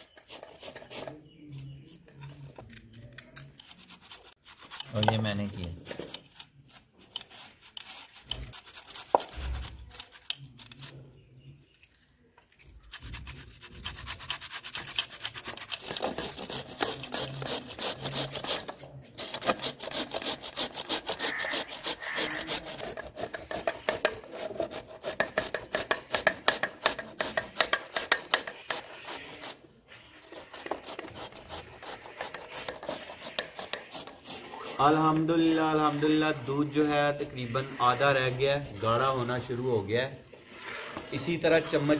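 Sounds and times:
carrots rasping on a grater: 12.8 - 41.9.

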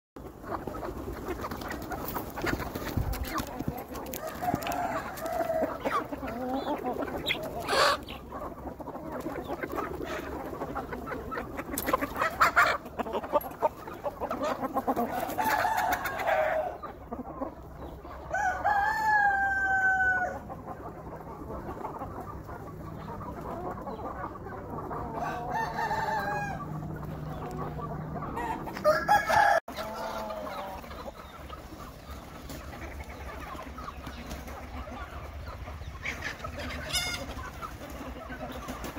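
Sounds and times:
chickens clucking: 0.2 - 38.9
rooster crowing: 4.2 - 5.8, 15.3 - 16.7, 18.3 - 20.4, 25.1 - 26.8, 28.4 - 29.7.

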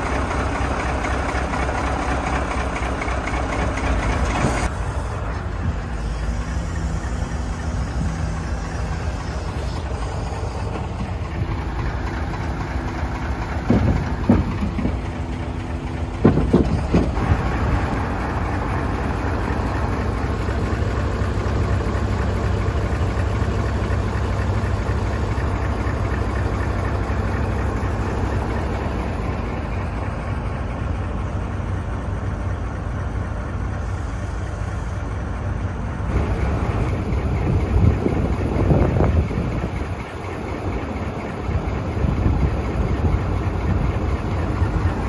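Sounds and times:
diesel truck engine running: 0.0 - 45.0
short clunks: 13.6 - 15.2, 15.9 - 17.4.

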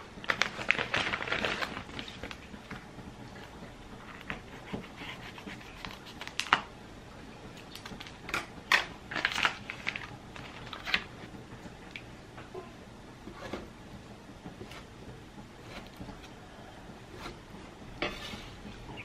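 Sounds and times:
stiff plastic crinkling: 0.2 - 2.8, 7.7 - 11.3.

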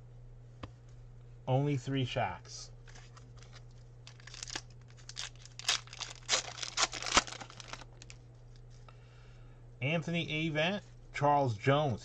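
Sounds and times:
wrapper tearing and crinkling: 3.0 - 8.2.

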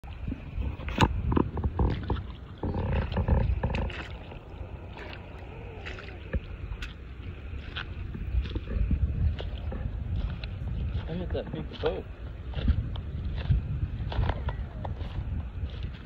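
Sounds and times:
wind rumbling on microphone: 0.0 - 16.0
footsteps crunching on rubble: 1.0 - 16.0.

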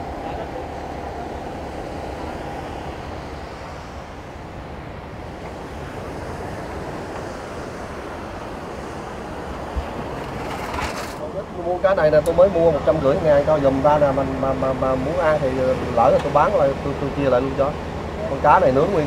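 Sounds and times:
wind on microphone: 0.0 - 13.0
sea surf breaking on beach: 1.6 - 14.8.

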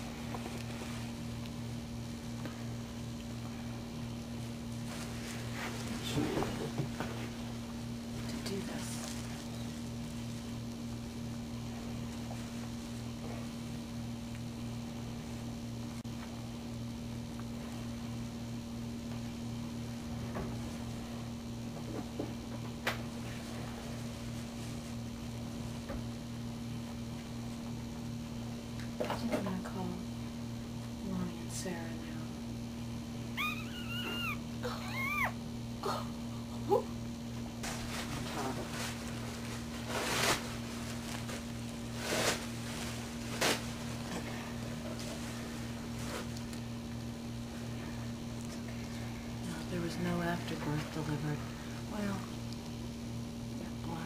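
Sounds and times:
low electrical hum: 0.0 - 54.0
towels rustling: 37.6 - 44.2.

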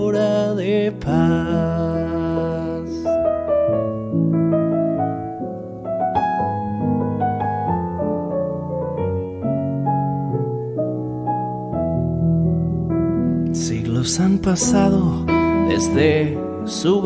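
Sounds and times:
solo piano: 0.0 - 17.0.

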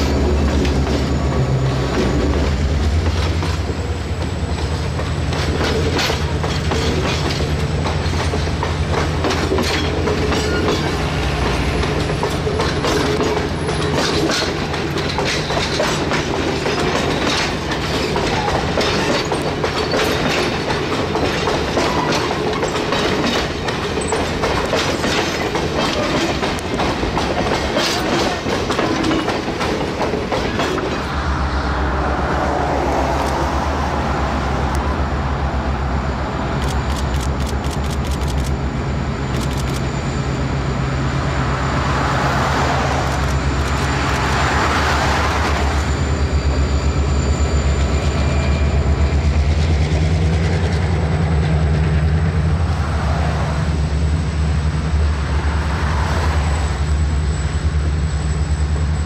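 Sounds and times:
train wheels clacking over rail joints: 0.0 - 31.2
locomotive engine droning: 0.0 - 59.0
sharp clicks: 36.6 - 38.6.

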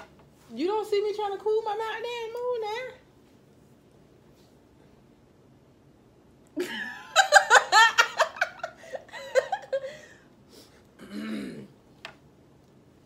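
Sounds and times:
girl giggling: 6.6 - 10.2.

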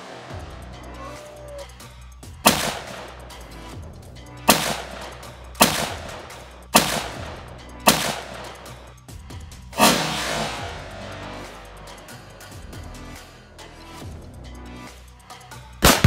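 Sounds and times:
rifle shots echoing: 2.5 - 3.1, 4.5 - 7.3, 7.9 - 8.6.

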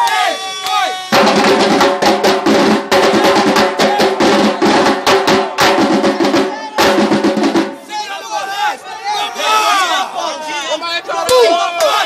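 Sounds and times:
samba drumming: 0.5 - 7.9.

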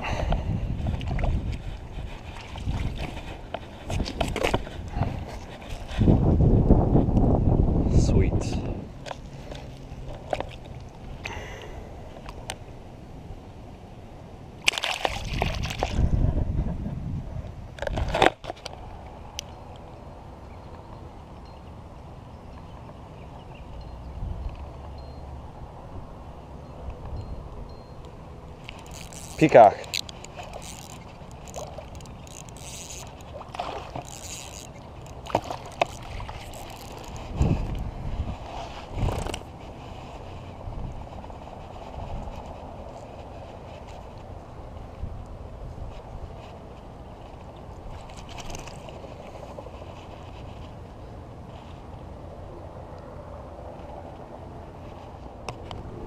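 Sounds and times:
fish splashing in water: 14.6 - 16.0, 29.9 - 37.1
fish splashing at water surface: 14.7 - 16.0
spinning reel cranking: 28.7 - 33.3, 34.0 - 37.3.

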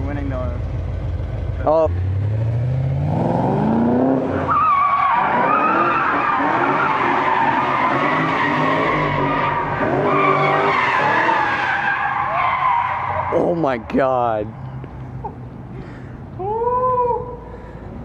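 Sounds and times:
car engine revving: 0.2 - 13.9
tyres squealing: 4.3 - 15.4.

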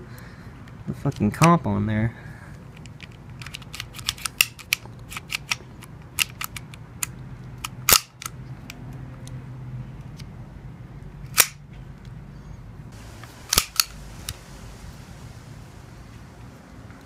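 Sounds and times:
pistol slide clacks: 2.8 - 8.8, 11.3 - 11.6, 13.5 - 14.4
small sharp metal clicks: 2.8 - 9.4.

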